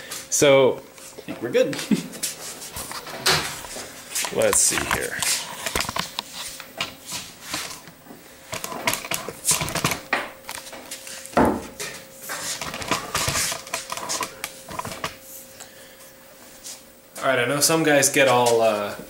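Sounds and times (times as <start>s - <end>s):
faint steady hum: 0.0s - 19.0s
handling clicks and rustles: 2.8s - 11.0s
loud knock: 11.4s - 11.7s.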